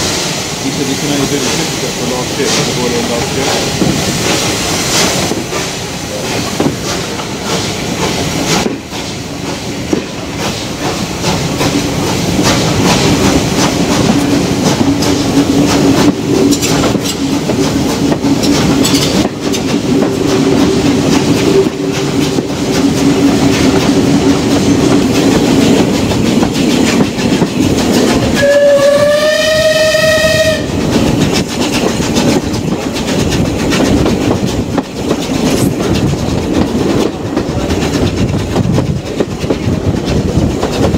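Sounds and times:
train wheels clattering over rail joints: 0.0s - 29.0s, 29.6s - 40.9s
steam locomotive whistle: 28.4s - 30.8s.

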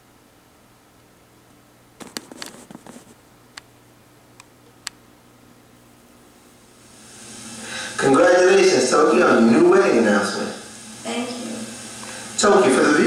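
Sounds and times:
faint steady hum: 0.0s - 13.0s
hiss: 6.7s - 13.0s.

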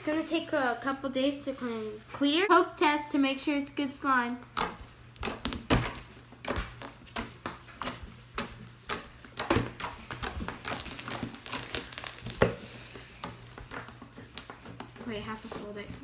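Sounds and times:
slime squelching and clicking: 4.5s - 12.7s.

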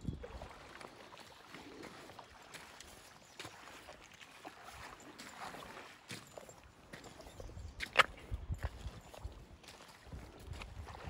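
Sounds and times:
river water moving: 0.0s - 11.0s
light splashes: 0.2s - 7.2s.

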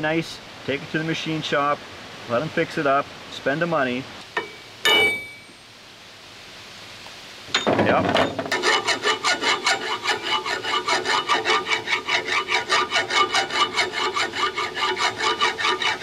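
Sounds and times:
file rasping on steel: 8.3s - 16.0s.

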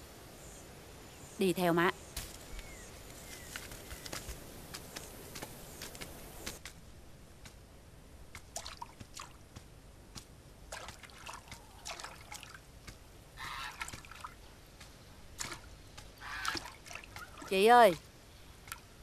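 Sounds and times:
pond water sloshing: 8.3s - 19.0s.

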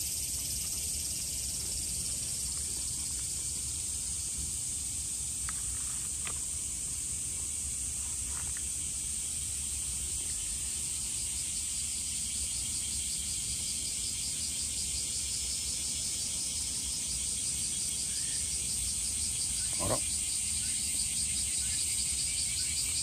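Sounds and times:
insect pulsing chirp: 0.0s - 23.0s
insect high trill: 6.8s - 23.0s.

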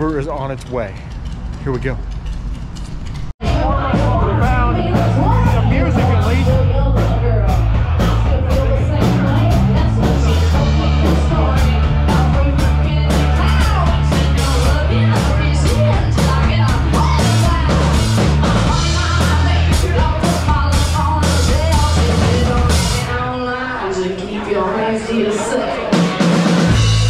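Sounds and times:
drum kit: 0.0s - 23.2s, 25.9s - 27.0s
heavy steady bass: 3.2s - 23.2s, 26.7s - 27.0s
woman singing: 3.4s - 26.5s.

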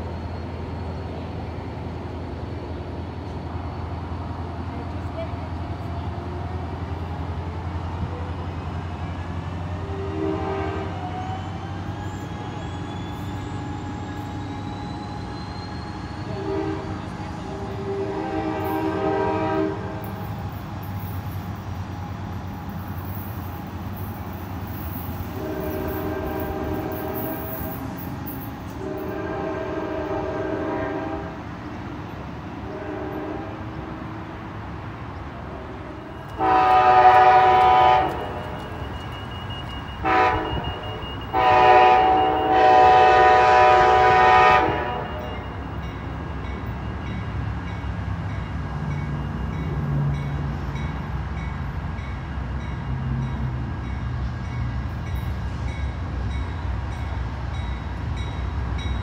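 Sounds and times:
train engine low rumble: 0.0s - 59.0s
locomotive horn blasts: 9.8s - 11.0s, 16.3s - 20.1s, 25.4s - 27.4s, 28.8s - 31.4s, 32.6s - 34.0s, 36.0s - 38.6s, 40.0s - 45.5s.

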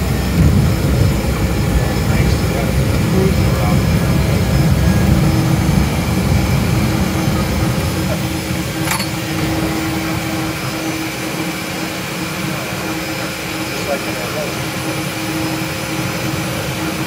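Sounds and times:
turboprop engine running: 0.0s - 17.0s
sharp click: 8.8s - 9.2s.

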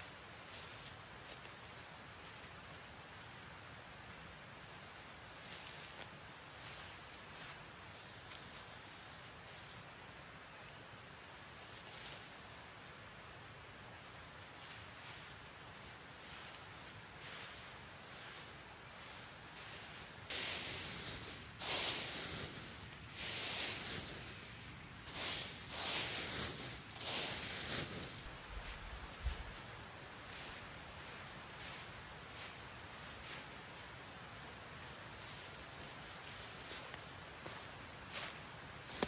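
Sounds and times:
boots stepping on dry leaves: 14.9s - 32.6s.

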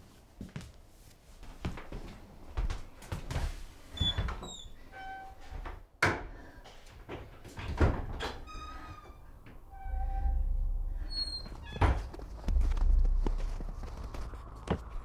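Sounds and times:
door squeaking: 3.9s - 5.8s, 7.6s - 12.4s.

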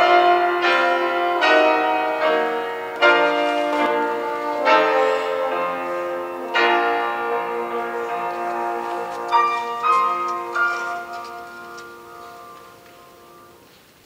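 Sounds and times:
french horn: 0.0s - 13.8s
piano chords: 0.0s - 14.0s.

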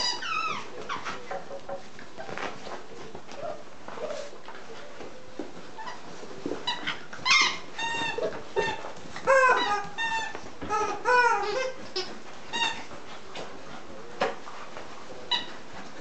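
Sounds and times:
puppies yipping and whining: 0.0s - 1.6s, 3.0s - 13.0s.

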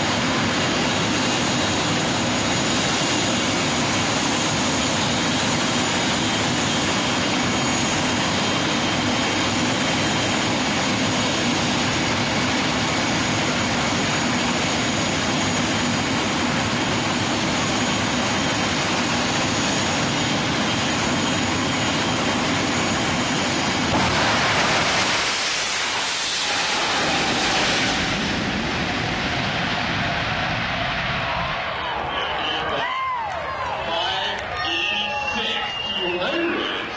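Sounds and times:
turbine engines running: 0.0s - 36.9s
jet car passing: 21.6s - 34.2s.

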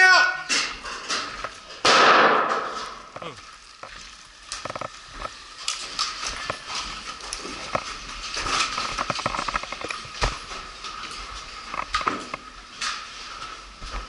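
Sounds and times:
boots on hollow wooden floor: 6.2s - 14.0s.

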